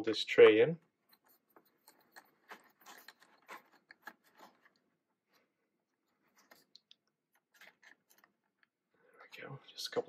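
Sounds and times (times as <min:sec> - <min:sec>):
screwdriver scratching and clicking: 0:01.0 - 0:04.9, 0:06.3 - 0:08.7.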